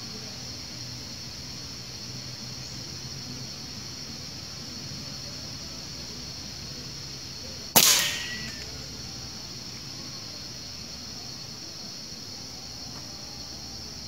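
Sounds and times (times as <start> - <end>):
high insect buzz: 0.0 - 14.0
rifle shot with echo: 7.8 - 8.8.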